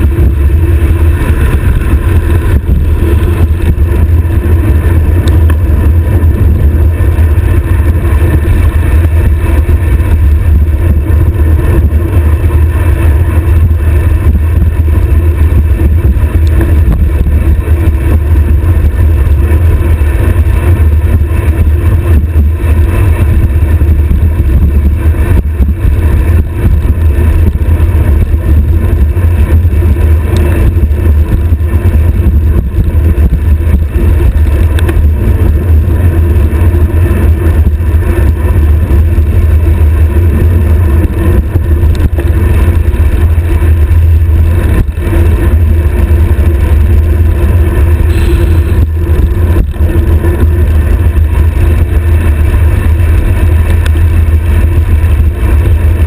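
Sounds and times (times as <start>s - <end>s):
wind rush on microphone: 0.0s - 56.0s.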